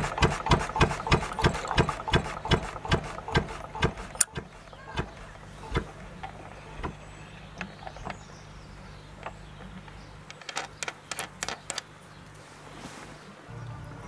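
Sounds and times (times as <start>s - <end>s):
sharp clicks: 0.0s - 8.3s
stationary engine running: 0.0s - 8.9s.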